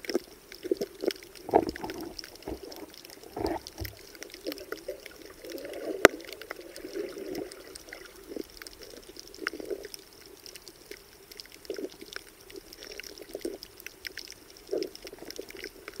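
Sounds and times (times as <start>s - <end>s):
muffled underwater water sloshing: 0.0s - 10.2s
sharp clicks and crackles: 0.0s - 16.0s.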